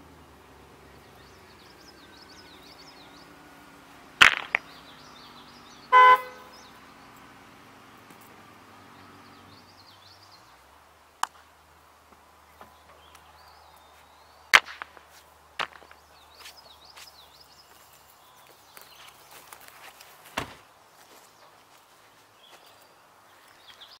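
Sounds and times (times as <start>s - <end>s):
birds chirping: 0.0s - 24.0s
rocks landing with sharp knocks: 4.2s - 4.9s, 14.5s - 16.5s, 19.5s - 20.7s.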